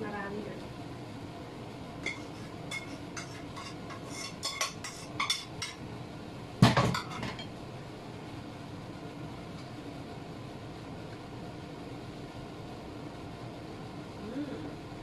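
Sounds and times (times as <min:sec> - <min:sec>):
utensils clinking against pans: 0:02.0 - 0:05.8, 0:06.7 - 0:07.5.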